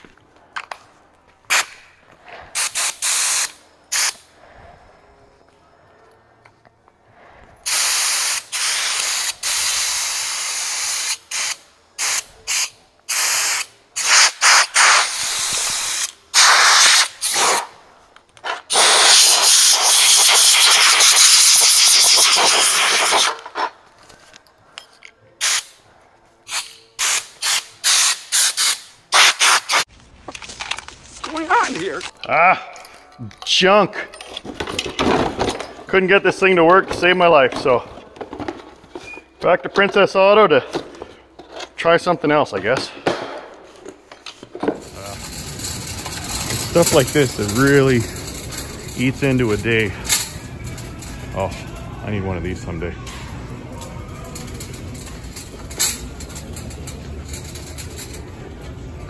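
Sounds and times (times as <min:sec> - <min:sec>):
compressed air hissing blasts: 0:02.5 - 0:04.4, 0:07.6 - 0:17.8, 0:18.7 - 0:23.6, 0:25.4 - 0:25.8, 0:26.4 - 0:29.9.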